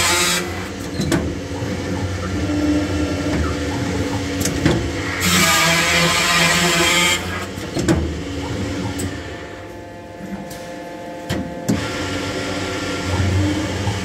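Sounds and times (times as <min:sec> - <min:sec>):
drilling machine humming: 0:00.0 - 0:10.3.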